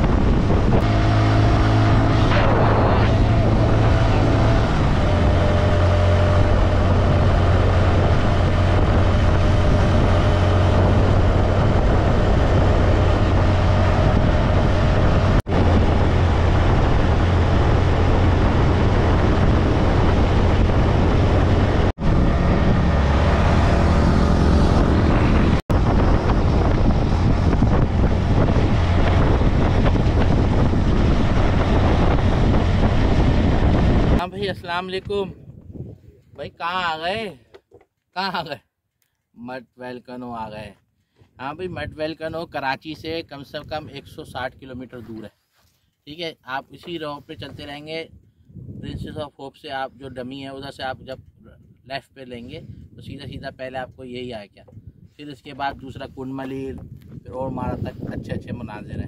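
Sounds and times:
motorcycle engine running: 0.0 - 34.3
wind rushing over microphone: 0.0 - 37.3, 41.4 - 45.2, 46.8 - 59.0.

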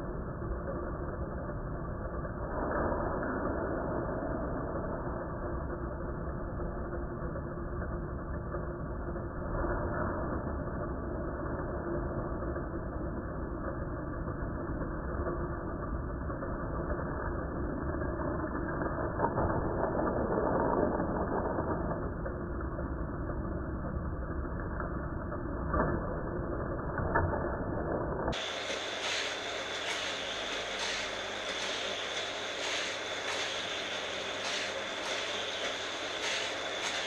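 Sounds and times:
toy cars clicking through track: 28.3 - 37.0
toy track boosters whirring: 28.4 - 37.0.

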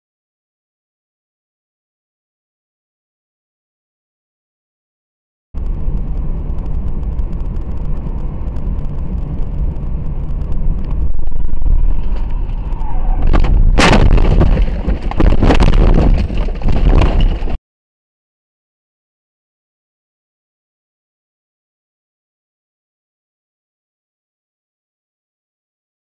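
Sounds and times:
car engine and road rumble: 5.6 - 17.6
knocks and clattering: 13.2 - 17.6
loud crash impact: 13.2 - 17.6.

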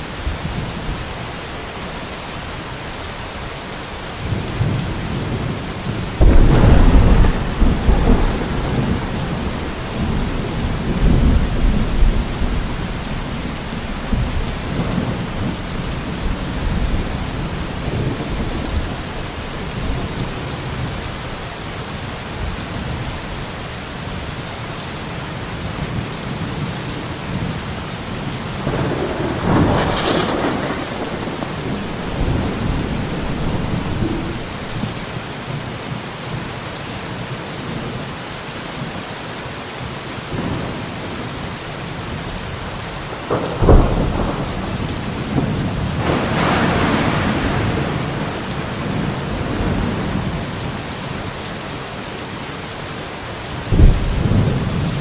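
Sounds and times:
rain falling through trees: 0.0 - 55.0
thunder rumbling: 4.2 - 21.0, 28.5 - 35.1, 43.1 - 50.5, 53.7 - 55.0.

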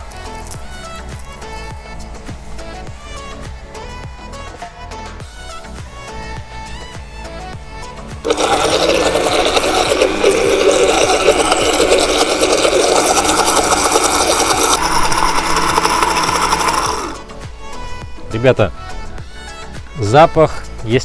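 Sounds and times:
blender running: 8.2 - 17.3.

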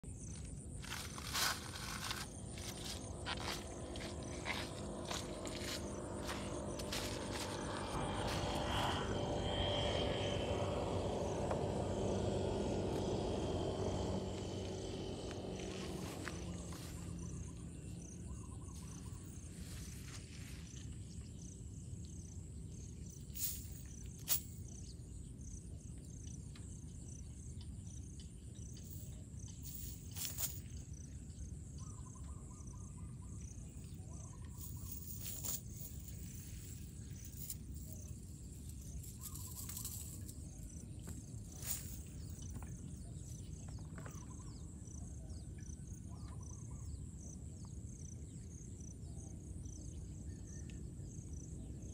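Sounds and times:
insects chirping: 0.0 - 51.9
low rumble: 0.9 - 19.6.

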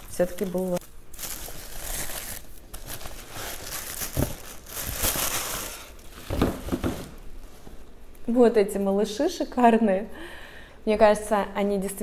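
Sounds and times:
tissue paper crinkling: 0.0 - 6.8.

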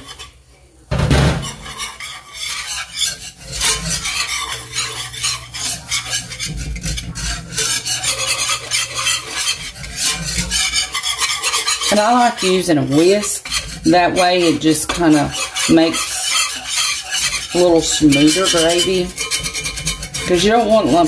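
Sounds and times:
whisk scraping skillet: 0.0 - 21.0.

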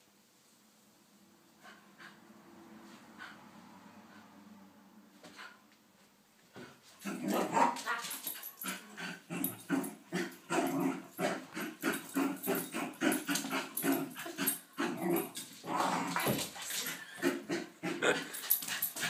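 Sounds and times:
dog growling: 8.6 - 18.6.

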